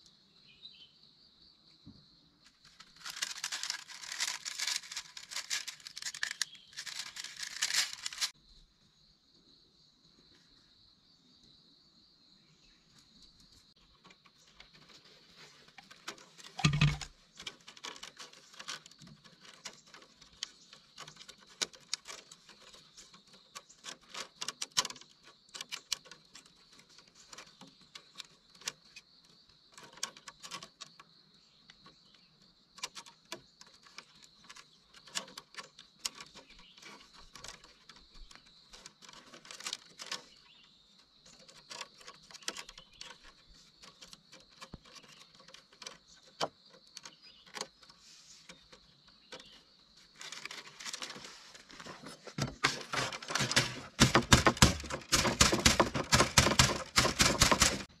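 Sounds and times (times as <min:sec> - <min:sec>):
bamboo strips clicking: 0:02.6 - 0:08.4, 0:15.8 - 0:29.0, 0:32.8 - 0:40.3, 0:41.3 - 0:49.4, 0:52.4 - 0:57.9.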